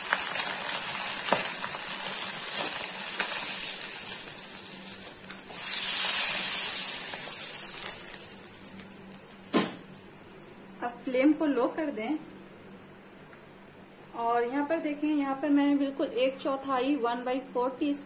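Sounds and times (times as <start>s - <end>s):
fish sizzling in hot oil: 0.0s - 9.4s
sharp knock: 9.5s - 9.8s.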